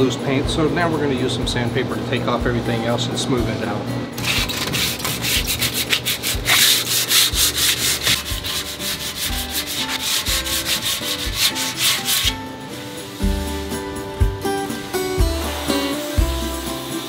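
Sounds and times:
sandpaper scraping metal: 0:04.2 - 0:13.4.

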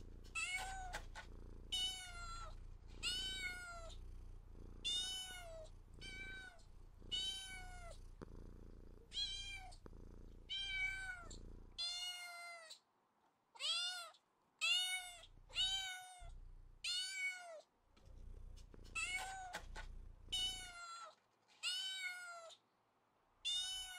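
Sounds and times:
cat meowing: 0:00.3 - 0:04.0, 0:04.8 - 0:08.0, 0:09.1 - 0:09.8, 0:10.5 - 0:12.8, 0:13.6 - 0:16.3, 0:18.9 - 0:22.6, 0:23.4 - 0:23.9.

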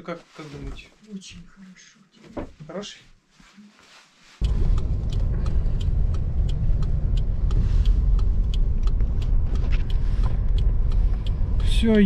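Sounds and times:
light ticks: 0:04.4 - 0:11.9
car interior rumble: 0:04.4 - 0:12.0.

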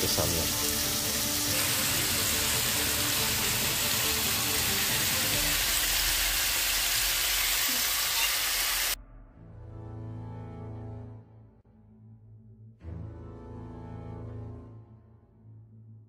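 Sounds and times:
meat sizzling in a grill pan: 0:00.2 - 0:09.0.

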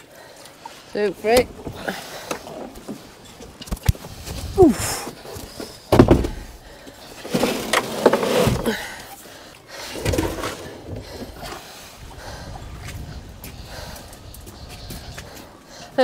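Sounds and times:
rubbish knocking and clattering: 0:05.1 - 0:09.0.

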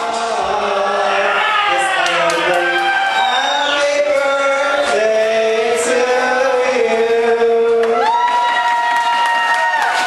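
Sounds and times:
person singing through pa: 0:00.0 - 0:08.7.

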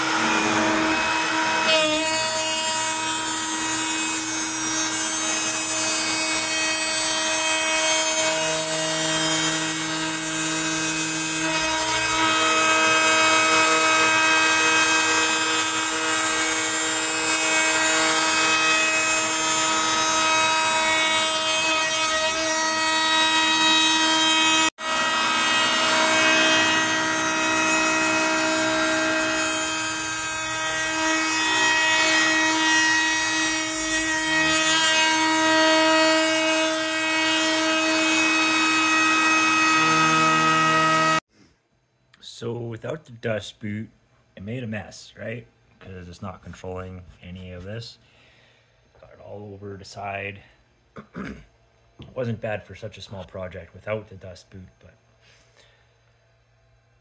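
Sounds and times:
router whining while cutting wood: 0:00.0 - 0:41.2.

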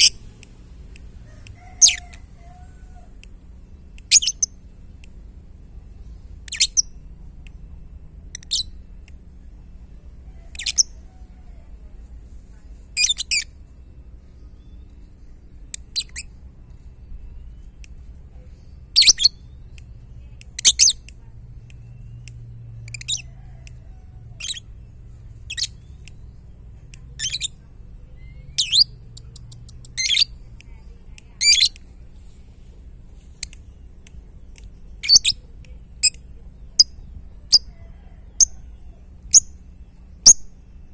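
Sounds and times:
lovebird chirping: 0:00.0 - 0:00.4, 0:01.6 - 0:02.8, 0:04.0 - 0:04.6, 0:06.0 - 0:07.1, 0:08.3 - 0:08.8, 0:10.4 - 0:11.1, 0:12.9 - 0:13.6, 0:14.2 - 0:16.4, 0:17.1 - 0:19.8, 0:20.4 - 0:21.1, 0:22.8 - 0:23.4, 0:24.3 - 0:26.5, 0:27.1 - 0:32.3, 0:34.8 - 0:37.8, 0:39.2 - 0:39.6.

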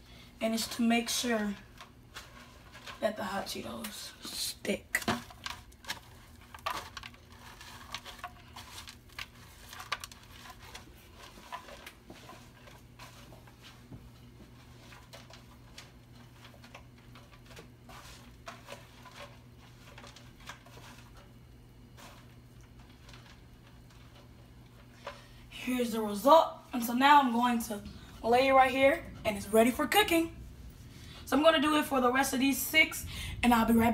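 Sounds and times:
low steady hum: 0:00.0 - 0:33.9
crumbs crunching and crackling: 0:04.9 - 0:25.5.

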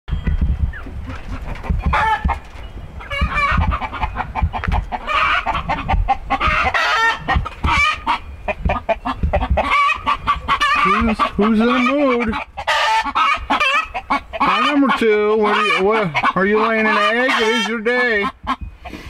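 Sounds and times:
scattered thumps: 0:00.1 - 0:04.9, 0:07.2 - 0:07.9, 0:08.5 - 0:09.7
low rumbling: 0:00.1 - 0:12.6
chickens cackling and squawking: 0:00.3 - 0:19.0.

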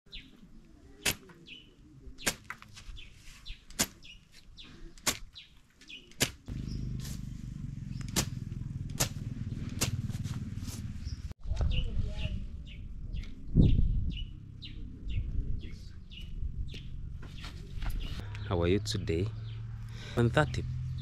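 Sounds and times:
bird chirps: 0:00.1 - 0:07.0, 0:10.9 - 0:21.0
blade swishing through grass: 0:06.2 - 0:11.0
low steady rumble: 0:06.5 - 0:17.2.

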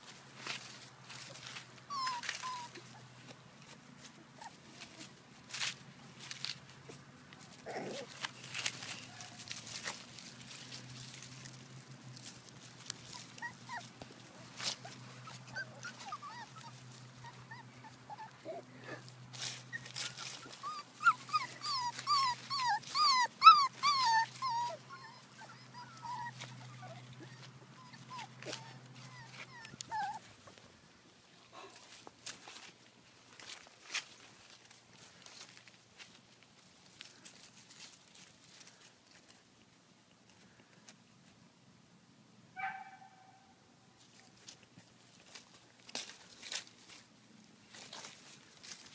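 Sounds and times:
puppies whining and yipping: 0:01.8 - 0:03.2, 0:04.2 - 0:05.1, 0:13.0 - 0:18.7, 0:19.4 - 0:30.5
high-pitched puppy yelps: 0:14.6 - 0:18.6, 0:19.7 - 0:30.2, 0:42.6 - 0:43.4
light clicks and rustles: 0:44.0 - 0:47.1.

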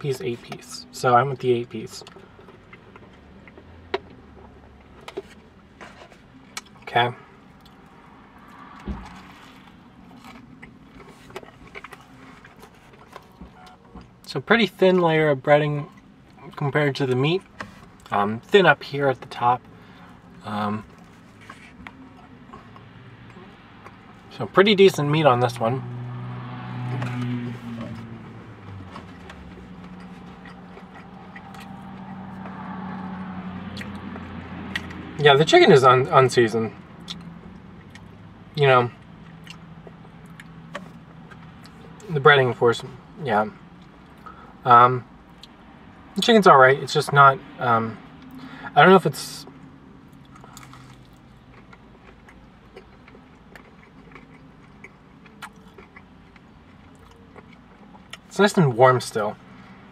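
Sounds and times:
low car interior hum: 0:00.0 - 0:59.9
soft chewing crunches: 0:01.4 - 0:14.3, 0:18.8 - 0:25.6, 0:26.4 - 0:35.1, 0:36.8 - 0:42.1, 0:49.4 - 0:58.3
person chewing crunchy food: 0:08.5 - 0:13.4, 0:26.4 - 0:33.0, 0:50.0 - 0:58.3.

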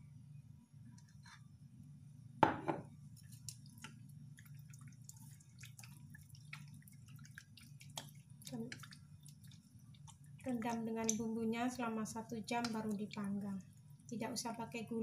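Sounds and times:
low steady hum: 0:00.0 - 0:15.0
knock on metal bowl: 0:02.4 - 0:02.9
hands squelching meat in marinade: 0:03.1 - 0:14.1.

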